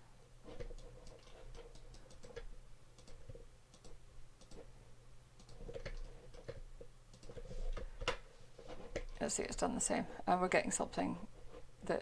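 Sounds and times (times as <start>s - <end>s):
low steady hum: 0.0s - 12.0s
computer mouse clicks: 0.5s - 4.7s, 5.4s - 8.2s.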